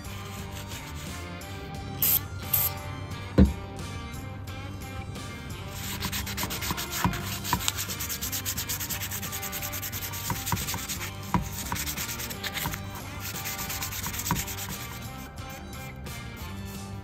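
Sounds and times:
sandpaper rubbing on metal: 0.0 - 1.3, 5.7 - 16.0
sharp scrapes: 5.8 - 15.2.

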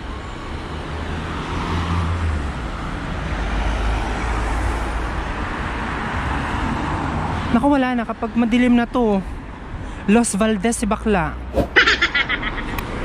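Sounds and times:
cars driving past: 0.4 - 7.6.

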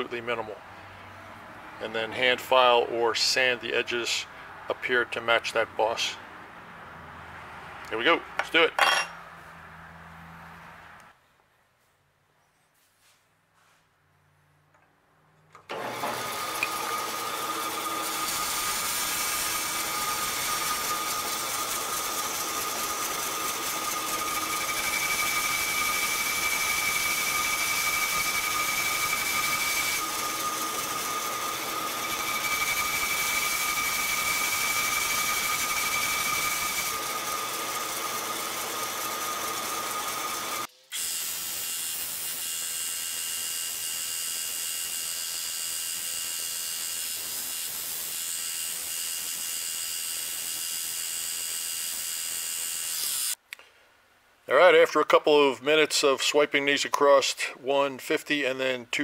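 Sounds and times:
belt sander running: 15.7 - 53.4
metal-cutting bandsaw: 15.7 - 53.4.

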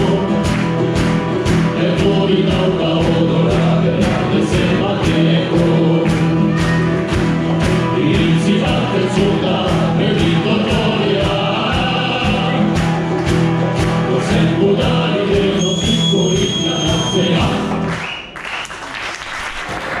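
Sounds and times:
male choir singing: 0.0 - 0.6, 1.6 - 17.8
crowd applauding: 0.0 - 1.7, 5.6 - 9.3, 15.6 - 20.0
live band playing: 0.0 - 18.1.

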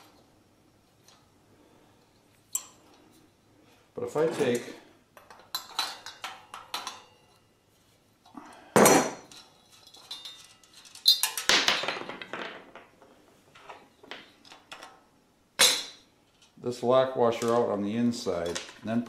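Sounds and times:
metal clinking and rattling: 4.4 - 7.5, 8.9 - 12.9.

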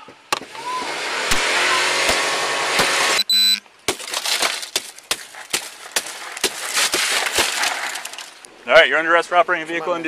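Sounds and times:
short electronic beep: 3.2 - 3.6.

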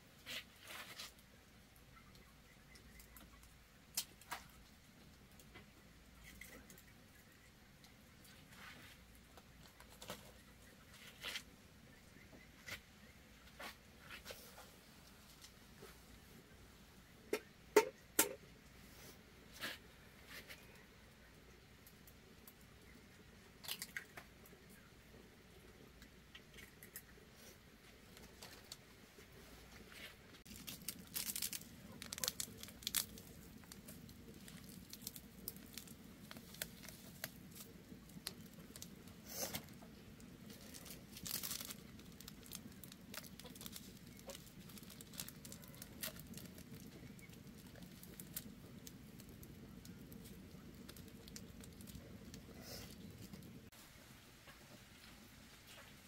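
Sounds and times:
bamboo husk tearing and crackling: 8.3 - 11.5, 30.4 - 53.7.

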